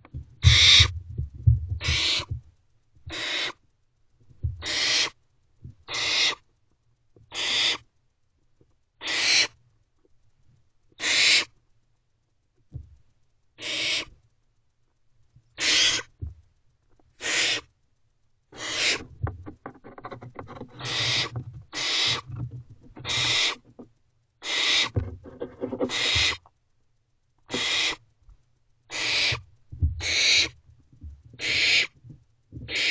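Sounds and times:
soft low bumps: 0.0 - 3.2, 4.2 - 4.7, 5.6 - 5.9, 12.7 - 13.1, 16.2 - 17.0, 19.0 - 24.0, 24.9 - 26.4, 29.3 - 32.7
owlets hissing: 27.5 - 28.0.

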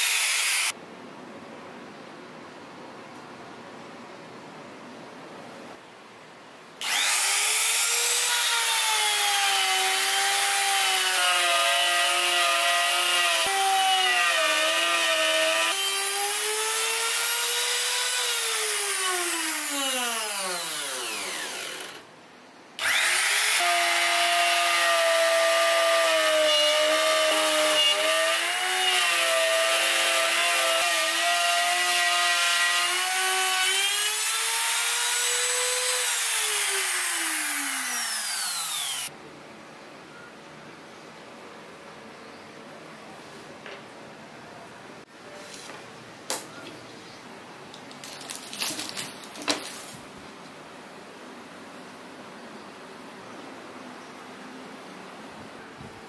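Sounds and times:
router whining while cutting wood: 0.0 - 0.7, 6.8 - 12.2, 12.8 - 22.0, 22.8 - 39.1
router winding down: 0.0 - 0.7, 6.8 - 10.4, 13.4 - 22.0, 22.8 - 25.6, 32.8 - 39.1.

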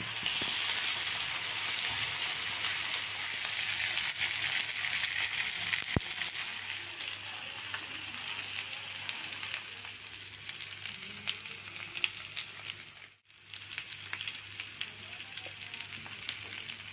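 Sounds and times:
fish sizzling in oil: 0.0 - 16.9.

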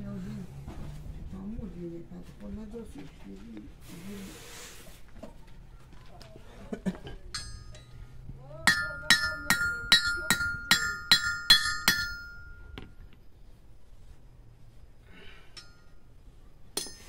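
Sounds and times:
hammer striking steel: 7.3 - 8.0, 8.6 - 12.9, 16.8 - 17.0.

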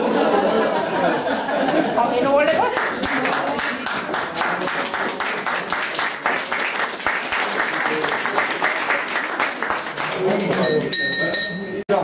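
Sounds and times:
crowd applauding: 1.9 - 11.0.

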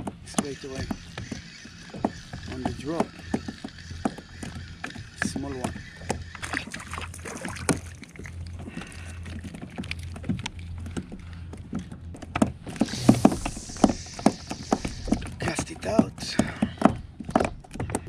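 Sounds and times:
low steady hum: 0.0 - 18.0
small clicks and knocks: 7.6 - 12.6
hiss: 12.8 - 15.3.

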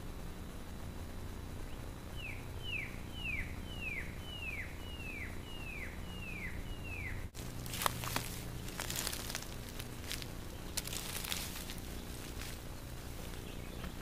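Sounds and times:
bird whistling descending notes: 2.2 - 7.3.

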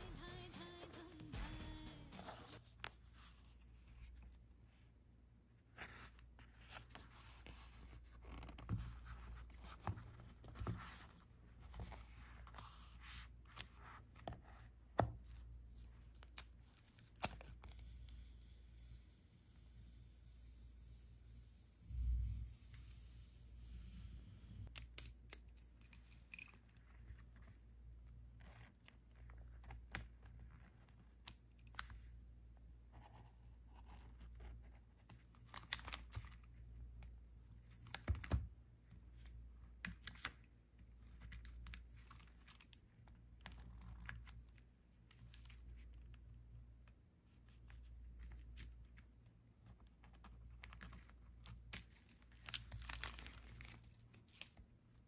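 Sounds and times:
low steady hum: 8.8 - 24.8.

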